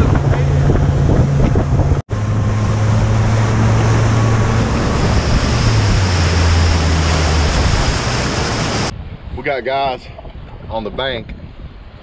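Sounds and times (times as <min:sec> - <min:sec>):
boat motor running: 0:00.0 - 0:08.9
water spray and rushing: 0:00.0 - 0:09.0.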